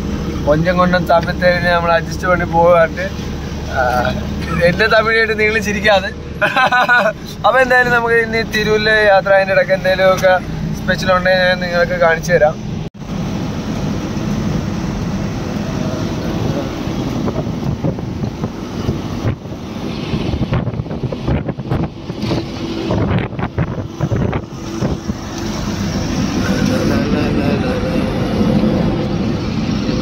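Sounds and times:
diesel engine droning: 0.0s - 30.0s
road and tyre noise: 0.0s - 30.0s
wind buffeting microphone: 13.0s - 30.0s.

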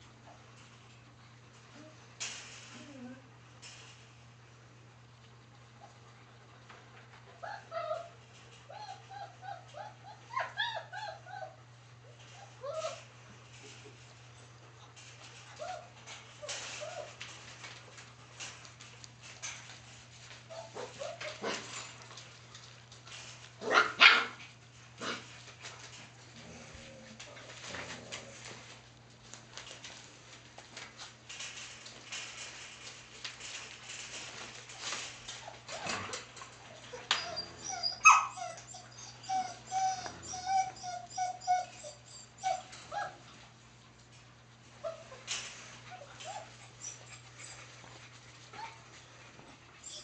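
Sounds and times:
puppy whines: 2.6s - 3.3s, 7.4s - 13.9s, 15.5s - 17.2s, 20.5s - 21.6s, 35.3s - 43.3s, 44.8s - 47.8s, 49.8s - 50.0s
puppies yipping and barking: 7.4s - 14.2s, 15.4s - 17.2s, 20.4s - 21.8s, 36.7s - 43.3s, 44.8s - 47.9s, 49.8s - 50.0s
puppy yip: 37.1s - 43.2s.

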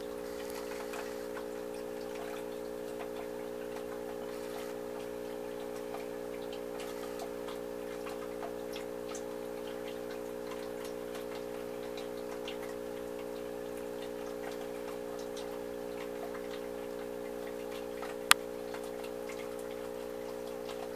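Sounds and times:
air pump hum: 0.0s - 9.1s
aquarium filter bubbling: 0.0s - 20.9s.

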